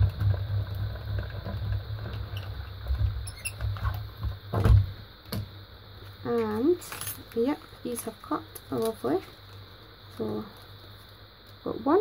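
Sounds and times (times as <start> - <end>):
die-cutting machine rollers rumbling: 0.0 - 4.5.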